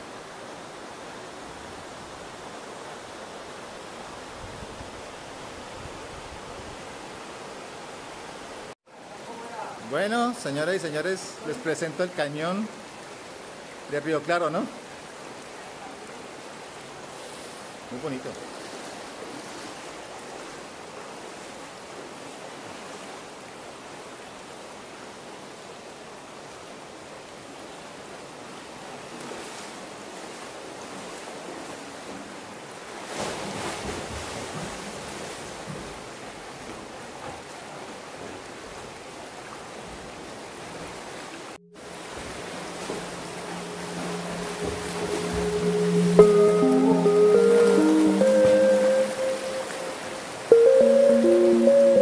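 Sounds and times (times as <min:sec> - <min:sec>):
river water rushing: 0:00.0 - 0:52.0
swimmer splashing: 0:33.0 - 0:36.1, 0:40.2 - 0:52.0
music with held notes: 0:42.2 - 0:52.0.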